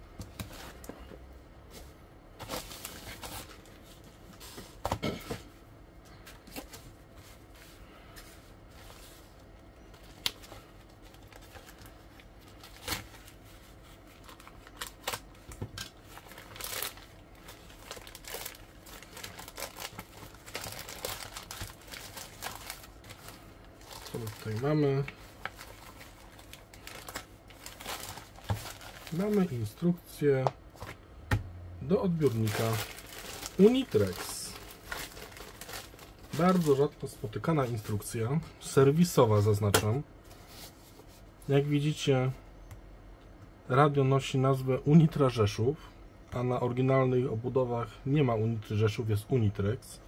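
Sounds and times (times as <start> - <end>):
plastic film crinkling: 8.6 - 29.9, 32.0 - 38.0
plastic tearing: 14.2 - 29.6, 32.2 - 36.8.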